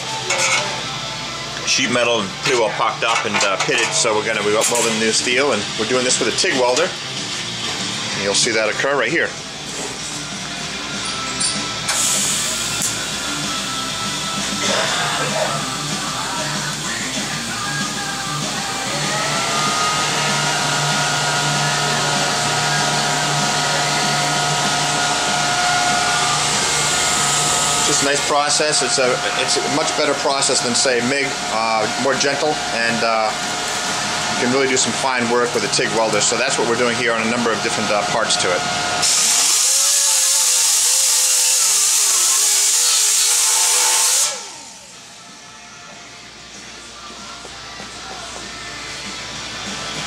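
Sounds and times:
welding arc hiss and whine: 0.0 - 50.0
disc grinder on sheet steel: 18.9 - 40.6.

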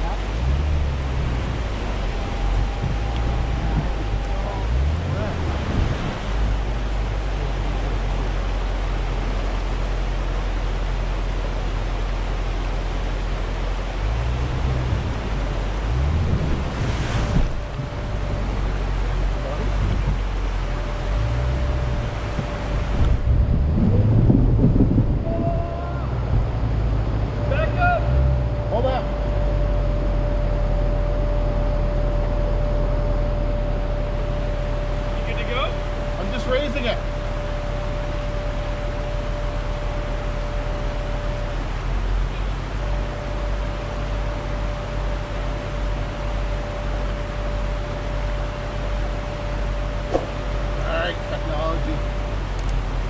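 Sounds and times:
river water rushing: 0.0 - 23.1
high-pitched whine: 0.0 - 53.0
vehicle engine idling: 0.0 - 53.0
wind noise: 0.3 - 7.3, 14.4 - 27.3.

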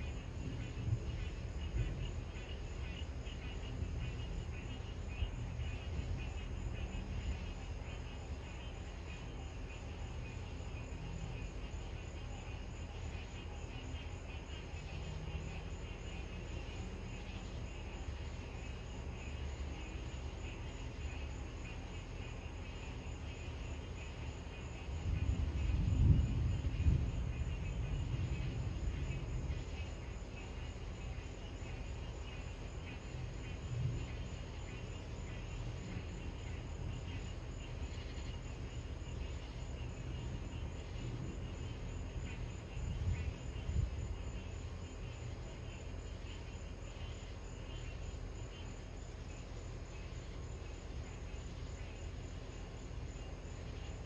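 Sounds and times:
distant thunder rumbling: 0.0 - 8.0, 24.0 - 38.0, 38.6 - 45.5
night insects chorus: 0.0 - 54.0.

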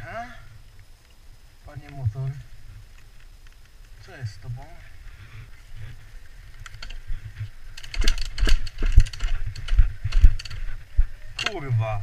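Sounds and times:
dirt bike clattering: 6.4 - 11.8.

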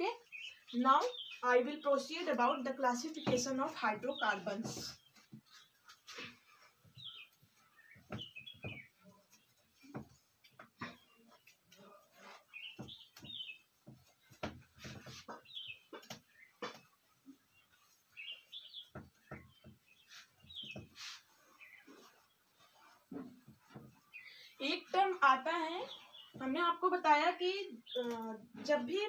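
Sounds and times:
whiteboard rubbing strokes: 11.3 - 15.7, 17.0 - 26.4.

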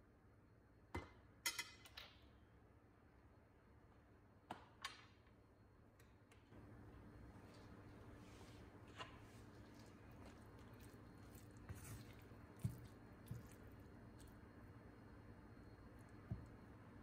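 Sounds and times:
spatula stirring chicken in pan: 7.6 - 14.5.

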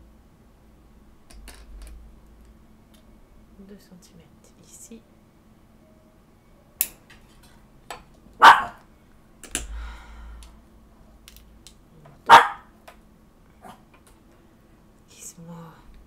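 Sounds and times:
dog barking: 8.4 - 8.8, 12.3 - 12.7.

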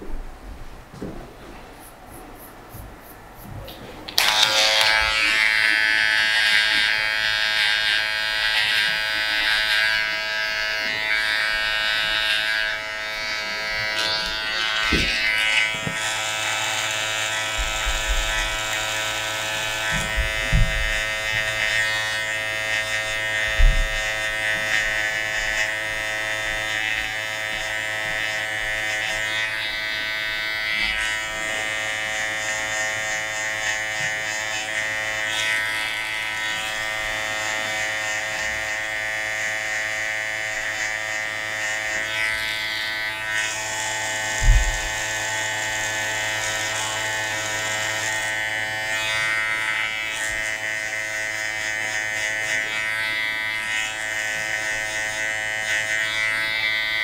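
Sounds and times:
electric hair clipper buzzing: 2.4 - 57.0
low thumps: 19.9 - 21.0, 44.4 - 45.0.

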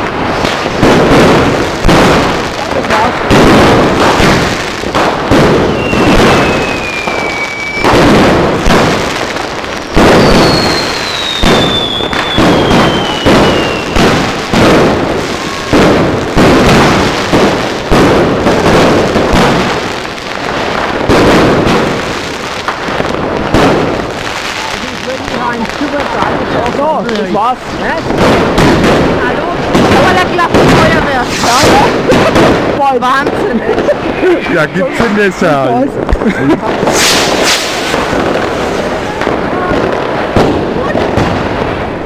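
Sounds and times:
fireworks bursting with loud bangs: 0.0 - 42.0
firework whistles falling in pitch: 5.7 - 8.0, 10.1 - 14.0.

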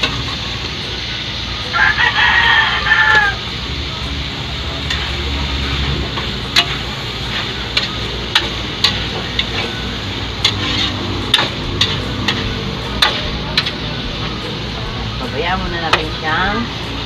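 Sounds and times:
food sizzling: 0.0 - 17.0
metal tongs clinking on wok: 6.2 - 9.8, 10.4 - 13.8.

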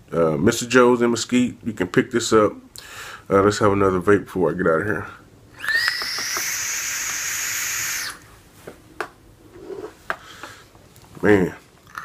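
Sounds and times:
vape coil hissing and sizzling: 5.6 - 8.3.

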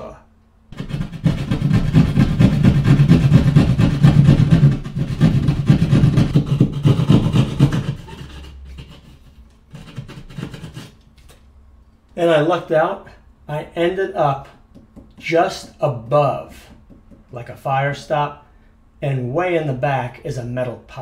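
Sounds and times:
hand saw cutting drywall: 0.7 - 11.0.

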